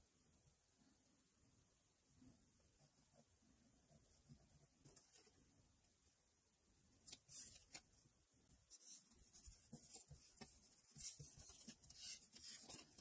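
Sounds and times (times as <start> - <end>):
paper rustling and rubbing on card: 7.1 - 7.9, 8.6 - 13.0.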